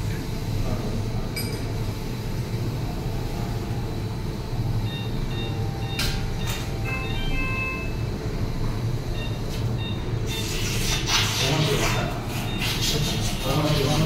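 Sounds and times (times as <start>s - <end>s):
steady low hum: 0.0s - 14.0s
faint high tones: 4.8s - 8.5s.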